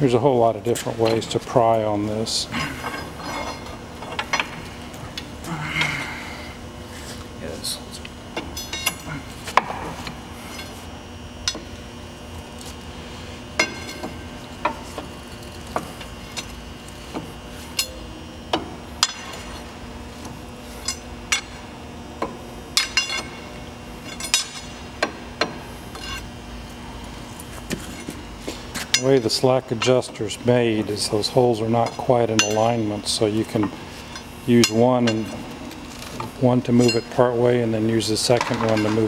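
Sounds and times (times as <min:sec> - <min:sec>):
steady hum: 0:00.0 - 0:39.0
pry bar clinking on metal: 0:17.8 - 0:18.0, 0:31.7 - 0:33.0.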